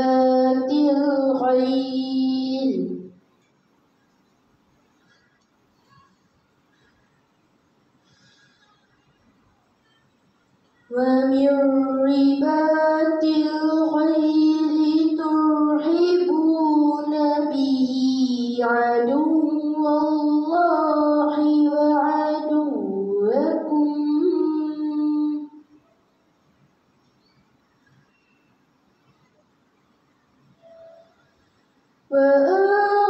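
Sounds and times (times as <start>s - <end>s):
girl chanting melodically: 0.0s - 3.2s, 10.9s - 25.7s, 32.1s - 33.0s.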